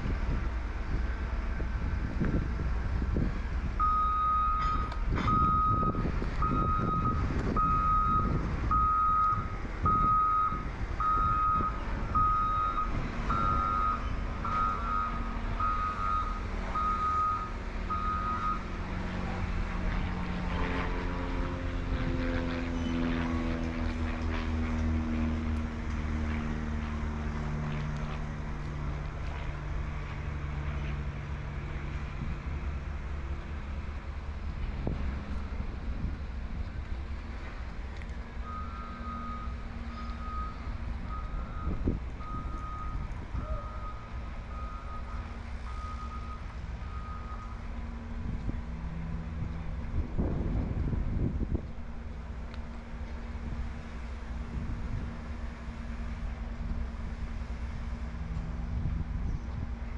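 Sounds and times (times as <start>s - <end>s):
engine drone: 0.0s - 59.9s
steady low rumble: 0.0s - 59.9s
reversing alarm beeping: 3.8s - 18.7s, 38.4s - 47.6s.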